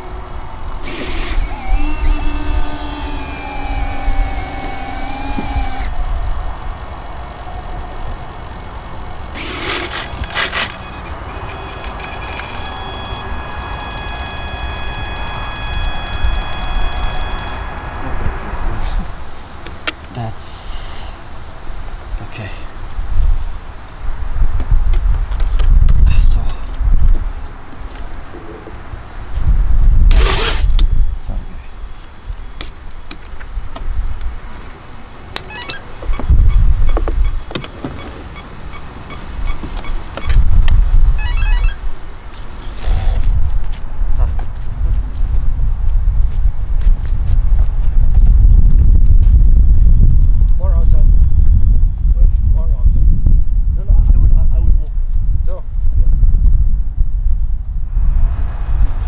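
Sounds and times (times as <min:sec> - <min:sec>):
electric fans hissing rushes: 0:00.0 - 0:22.1
electric fans high whine: 0:00.0 - 0:24.9
wind rumbling on microphone: 0:00.0 - 0:59.0
low rumble: 0:10.2 - 0:19.8.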